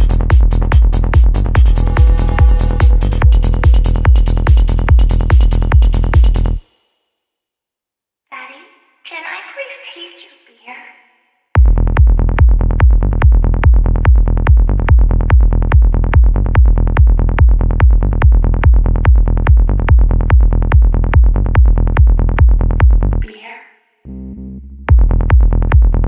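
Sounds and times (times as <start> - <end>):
electronic kick drum: 0.0 - 6.6, 11.6 - 23.2, 24.9 - 26.0
synth bassline: 0.0 - 6.6, 11.6 - 23.2, 24.1 - 26.0.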